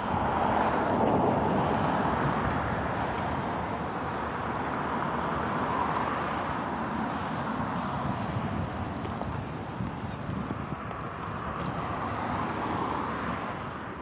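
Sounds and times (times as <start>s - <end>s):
diesel lorry engine running: 0.0s - 11.9s
air brake hiss: 7.1s - 7.8s.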